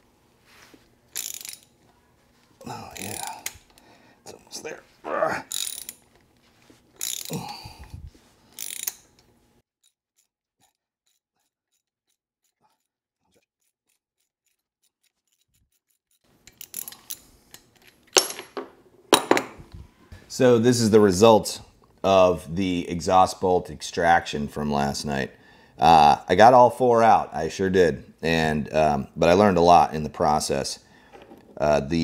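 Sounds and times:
ratchet wrench ratcheting: 1.1s - 1.8s, 2.7s - 3.8s, 5.5s - 6.1s, 7.0s - 7.6s, 8.5s - 9.2s, 9.8s - 17.9s.

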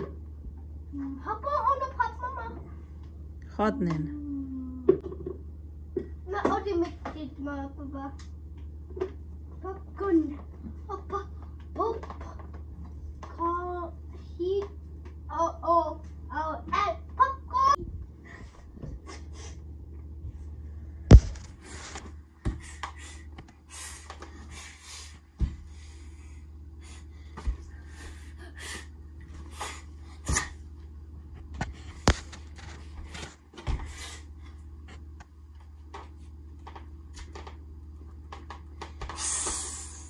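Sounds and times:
steady low hum: 0.0s - 40.0s
short hissing: 39.1s - 40.0s.

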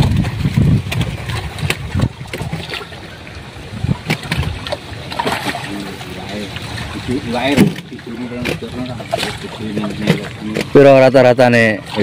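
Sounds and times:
sharp water splashes: 0.0s - 12.0s
water splashing in plastic barrels: 0.0s - 12.0s.

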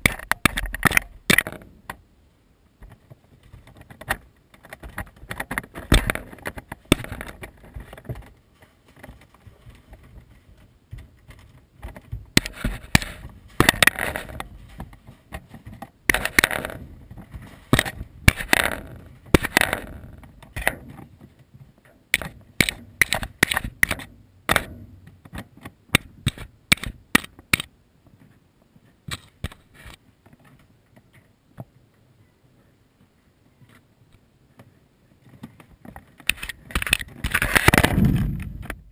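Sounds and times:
kittens scratching at camera: 2.9s - 20.9s.

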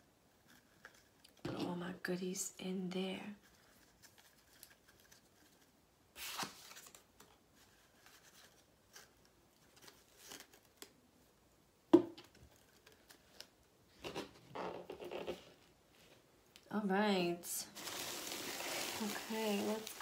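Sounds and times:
paper and plastic rustling: 3.4s - 10.9s, 17.6s - 20.0s.

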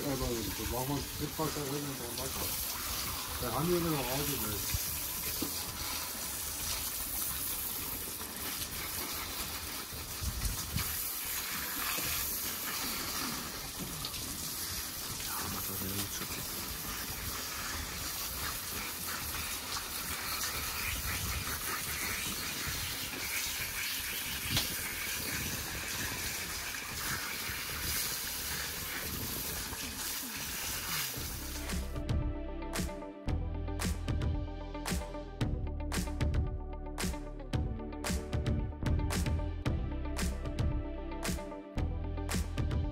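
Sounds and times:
hose spraying water: 0.0s - 32.0s.

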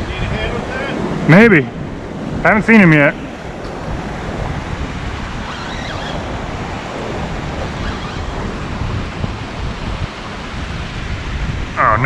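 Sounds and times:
turbulent water rushing: 0.0s - 12.0s.

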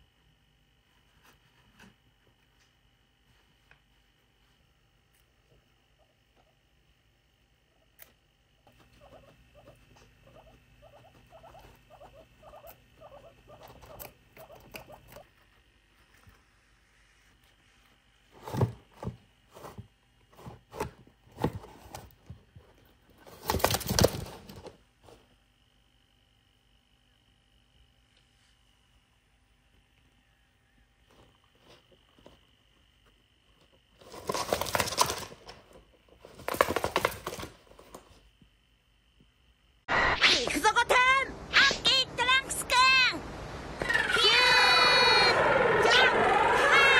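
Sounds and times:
guinea pig chewing: 8.7s - 15.4s
guinea pigs rustling cardboard box: 18.3s - 25.3s, 33.6s - 38.2s.

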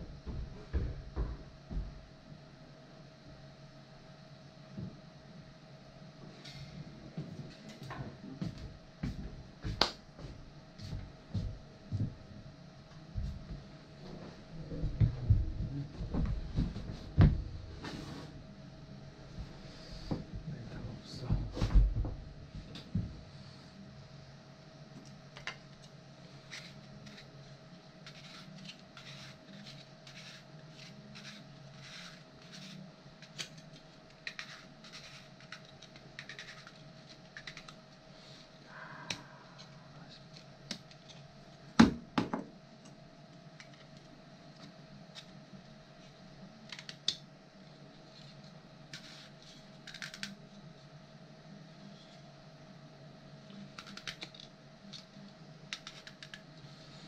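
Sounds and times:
low hum: 0.0s - 55.7s
plastic part being sanded: 28.0s - 36.8s.

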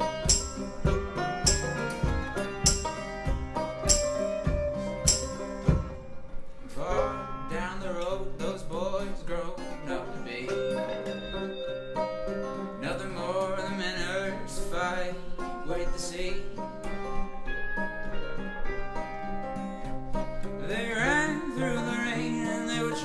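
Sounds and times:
bending lead melody: 0.0s - 6.4s, 10.3s - 13.8s
acoustic guitars strummed: 0.0s - 23.0s.

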